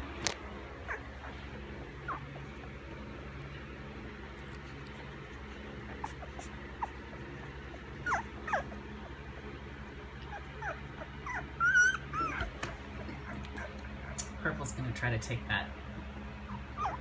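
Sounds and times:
puppies whimpering: 0:00.5 - 0:03.6, 0:04.3 - 0:14.4, 0:16.2 - 0:17.0
puppy squealing: 0:00.8 - 0:02.4, 0:05.6 - 0:14.2, 0:16.4 - 0:17.0.

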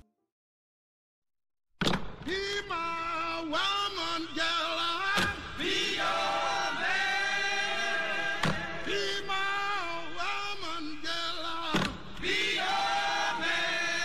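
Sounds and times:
voices singing long notes: 0:03.7 - 0:14.0.

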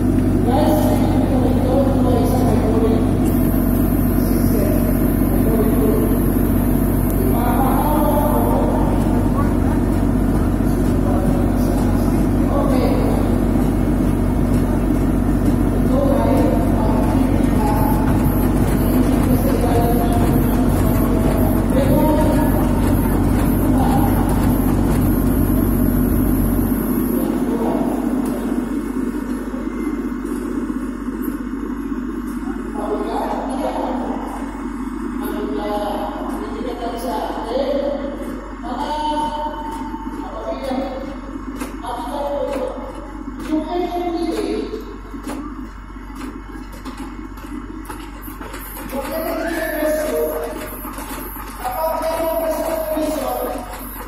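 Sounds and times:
low mechanical rumble: 0:00.0 - 0:54.0
machinery droning: 0:00.0 - 0:54.0.

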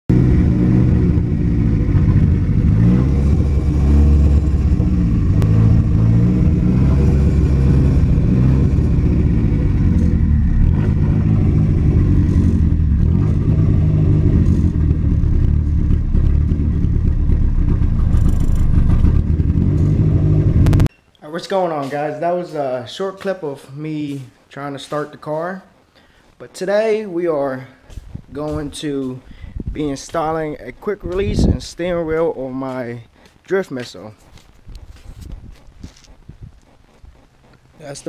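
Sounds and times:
car engine revving unevenly: 0:00.1 - 0:20.9.

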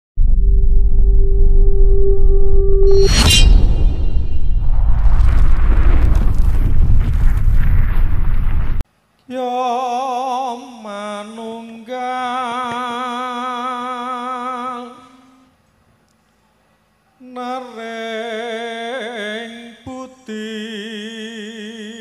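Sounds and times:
loud noisy intro sound effect: 0:00.2 - 0:08.8
man chanting a prayer: 0:17.2 - 0:22.0.

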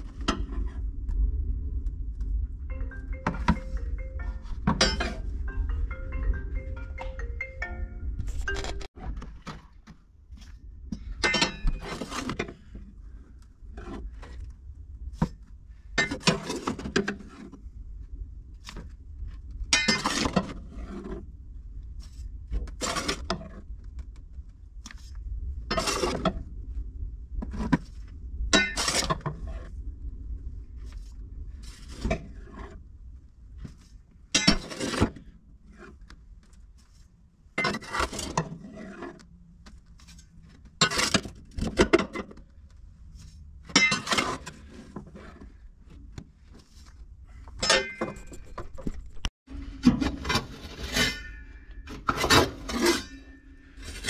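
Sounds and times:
low steady rumble: 0:00.0 - 0:08.8, 0:17.2 - 0:34.5
metal scraping and clanking: 0:03.2 - 0:05.4, 0:11.0 - 0:12.8, 0:28.5 - 0:29.7, 0:34.3 - 0:36.0, 0:37.6 - 0:39.2, 0:43.7 - 0:45.6, 0:47.4 - 0:54.0.

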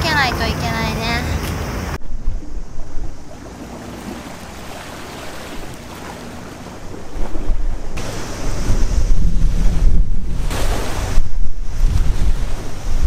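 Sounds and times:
waves washing against seawall: 0:00.0 - 0:13.0
wind rumbling on microphone: 0:00.0 - 0:13.0.

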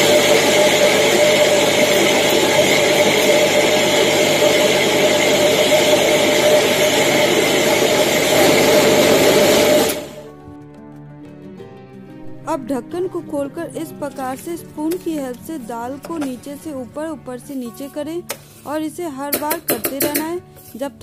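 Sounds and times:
mixer grinder whining: 0:00.0 - 0:10.3.

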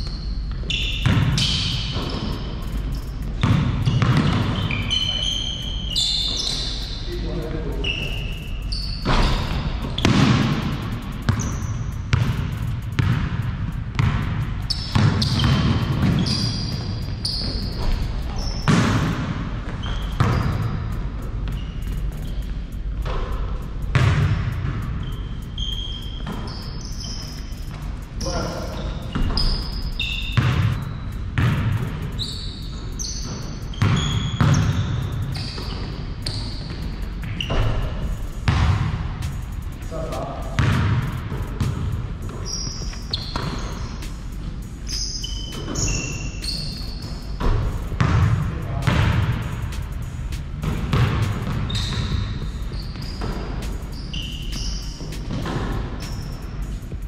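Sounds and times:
basketball bouncing: 0:00.0 - 0:57.0
sneaker squeaks: 0:00.0 - 0:57.0.

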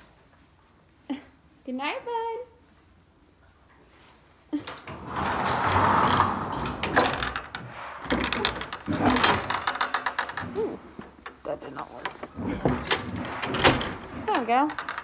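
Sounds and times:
sliding door rumbling: 0:04.7 - 0:11.0, 0:12.0 - 0:15.0
metal latch clanking: 0:04.7 - 0:15.0.

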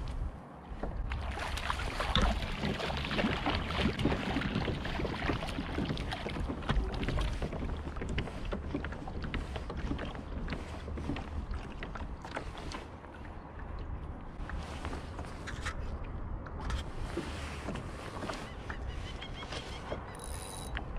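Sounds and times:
fish splashing at water surface: 0:01.2 - 0:06.5.

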